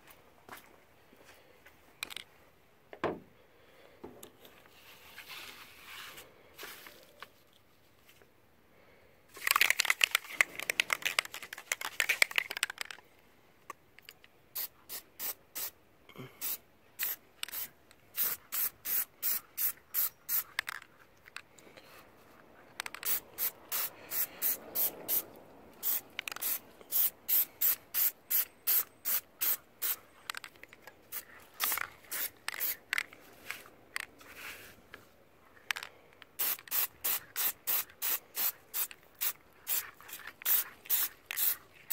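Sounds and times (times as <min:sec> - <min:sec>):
aerosol can spraying puffs: 0:14.6 - 0:15.8, 0:16.4 - 0:20.6, 0:22.9 - 0:30.0, 0:31.1 - 0:32.9, 0:36.4 - 0:41.9.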